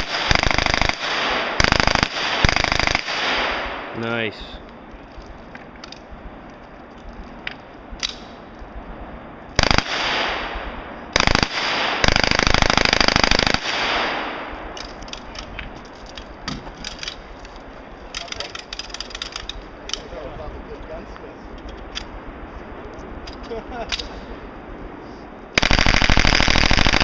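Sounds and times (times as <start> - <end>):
gunfire echo: 0.0 - 4.3, 9.6 - 14.8
submachine gun bursts: 11.2 - 13.9, 25.6 - 27.0.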